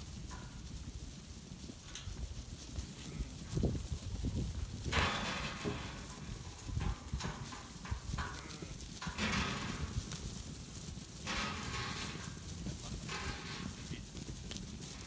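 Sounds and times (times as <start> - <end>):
rustling through grass: 0.0 - 15.0
sheep hoof thuds: 3.6 - 15.0.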